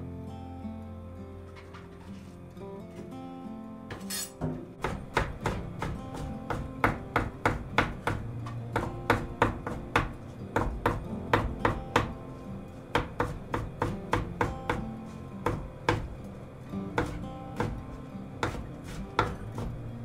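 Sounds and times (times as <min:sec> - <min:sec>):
knife chopping on cutting board: 0:03.9 - 0:12.2, 0:13.0 - 0:16.1, 0:17.0 - 0:19.8.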